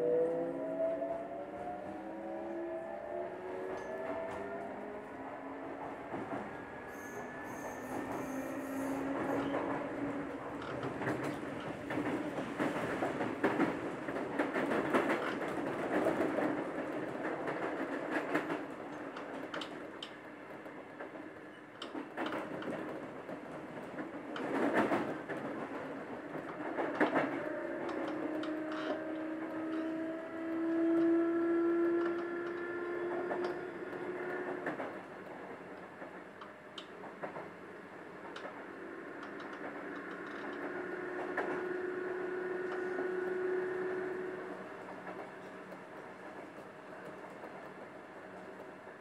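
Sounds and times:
rail running noise: 0:00.0 - 0:49.0
train motor whine: 0:06.1 - 0:10.2.

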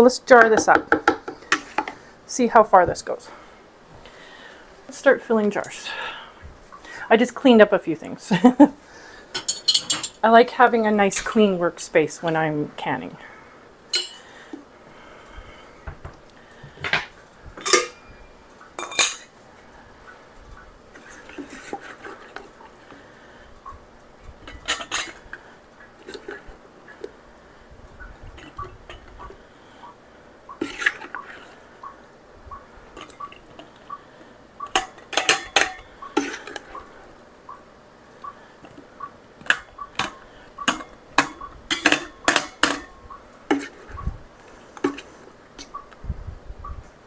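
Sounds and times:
metal spoon clinking on pot and jar: 0:09.4 - 0:10.2, 0:13.9 - 0:14.2, 0:17.6 - 0:19.3, 0:34.7 - 0:36.6, 0:39.5 - 0:43.7.

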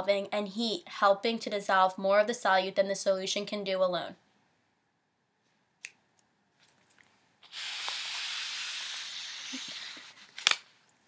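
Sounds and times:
steady hiss: 0:07.4 - 0:10.2.

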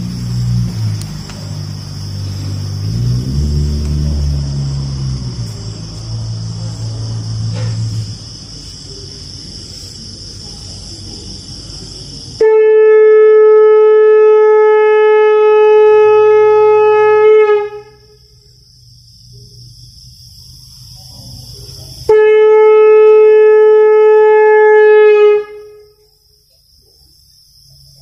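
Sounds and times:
low hum: 0:00.0 - 0:09.2
conch shell blown: 0:12.4 - 0:18.4, 0:22.1 - 0:26.0.

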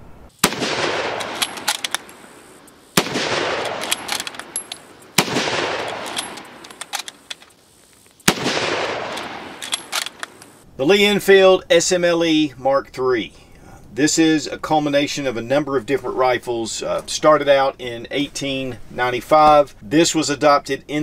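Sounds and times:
rifle shots with echo: 0:00.4 - 0:07.3, 0:08.3 - 0:10.4
rifle bolt clicks: 0:01.0 - 0:07.6, 0:08.3 - 0:10.5.

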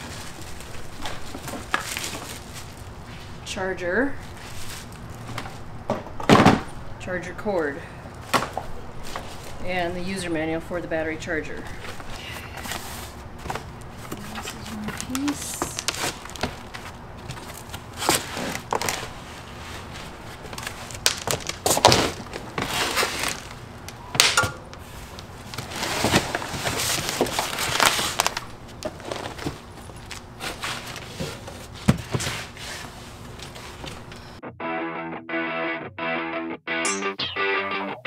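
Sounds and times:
cardboard and foam rustling: 0:00.0 - 0:03.4, 0:04.2 - 0:05.7, 0:11.8 - 0:23.6, 0:24.8 - 0:34.1.

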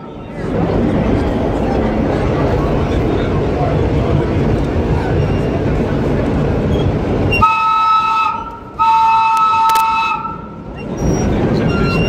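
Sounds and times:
train running rumble: 0:00.0 - 0:12.0
subway train horn blasts: 0:07.3 - 0:12.0.

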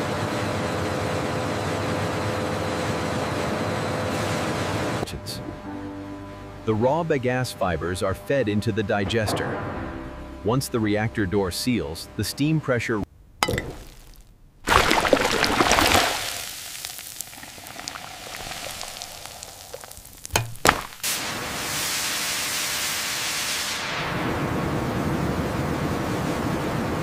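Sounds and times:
steam hissing: 0:16.1 - 0:24.5
sharp knocks: 0:20.3 - 0:21.0.

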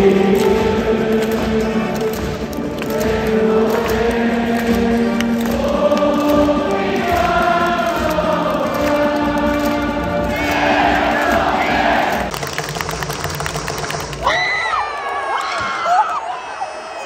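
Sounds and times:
stadium crowd singing: 0:00.0 - 0:12.3.

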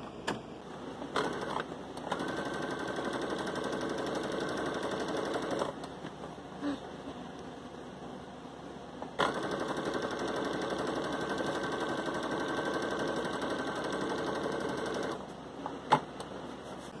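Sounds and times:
sewing machine stitching: 0:01.1 - 0:05.9, 0:09.2 - 0:15.2.

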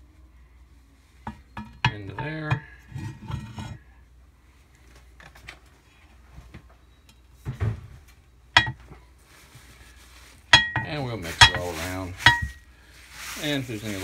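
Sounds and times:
metal clinks and knocks: 0:08.6 - 0:08.9, 0:10.5 - 0:12.6.

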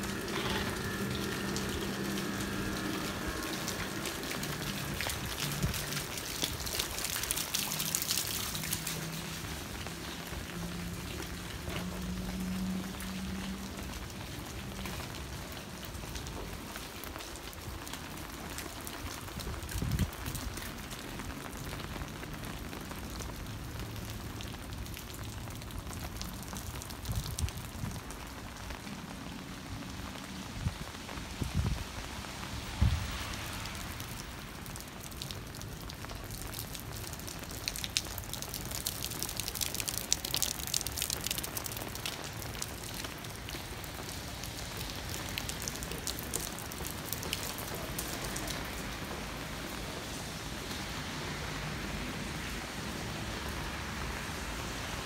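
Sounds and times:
low steady hum: 0:00.0 - 0:06.2
rain falling on pavement: 0:00.0 - 0:55.0.

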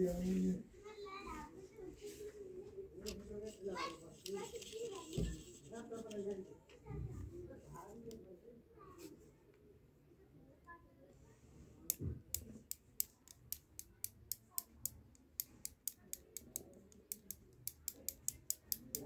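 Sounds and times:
paintbrush tapping clicks: 0:11.9 - 0:19.0.

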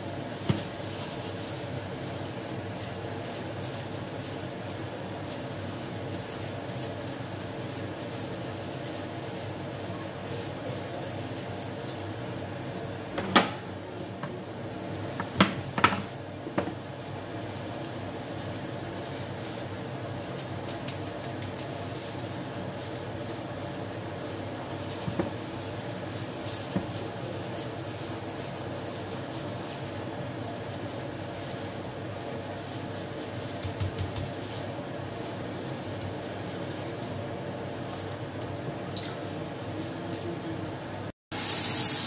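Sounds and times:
fan-like hum: 0:00.0 - 0:42.0.

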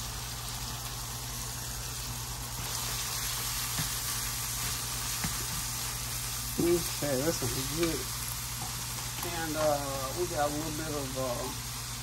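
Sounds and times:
food sizzling in a frying pan: 0:00.0 - 0:12.0
spatula tap: 0:03.7 - 0:04.0, 0:04.6 - 0:05.7.

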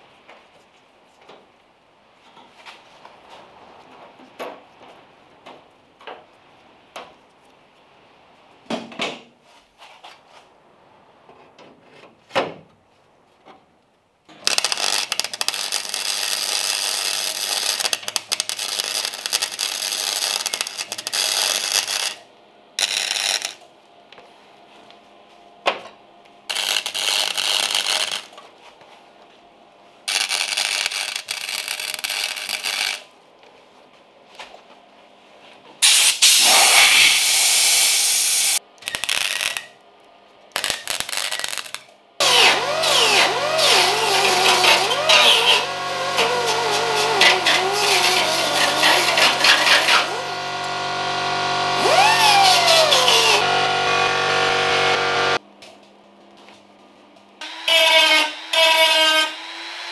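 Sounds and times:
mig welder welding: 0:14.3 - 0:23.7, 0:26.5 - 0:28.4, 0:30.0 - 0:33.1, 0:35.8 - 0:39.8, 0:40.5 - 0:55.4, 0:57.4 - 0:59.6.

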